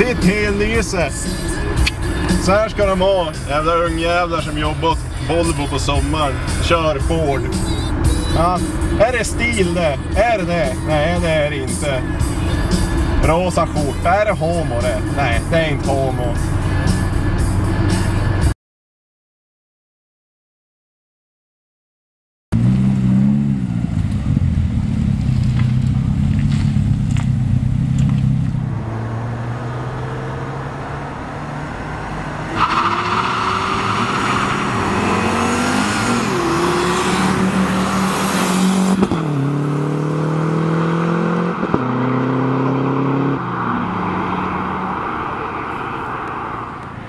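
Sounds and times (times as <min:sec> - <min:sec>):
car engine revving: 0:00.0 - 0:18.5, 0:22.6 - 0:46.6
tyre squeal: 0:32.5 - 0:36.4.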